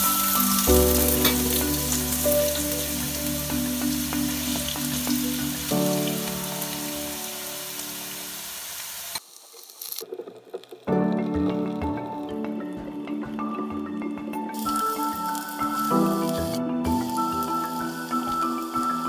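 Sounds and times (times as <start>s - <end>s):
potatoes sizzling in oil: 0.0s - 10.8s, 14.6s - 19.0s.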